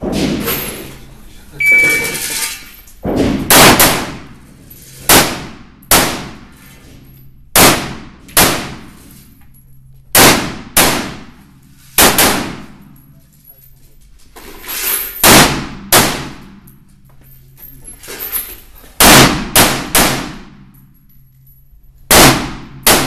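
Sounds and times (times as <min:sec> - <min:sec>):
shot timer beep: 0:01.6 - 0:02.2
rifle shots echoing indoors: 0:03.0 - 0:09.2, 0:09.8 - 0:13.0, 0:15.1 - 0:16.8, 0:19.0 - 0:21.4, 0:22.1 - 0:23.0.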